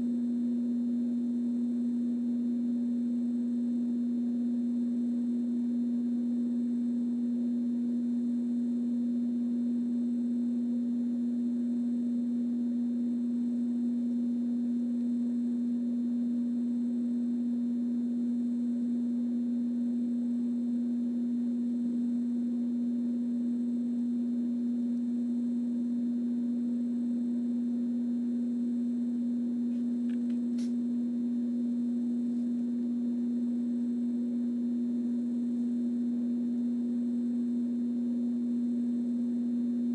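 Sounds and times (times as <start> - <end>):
steady electrical hum: 0.0 - 39.9.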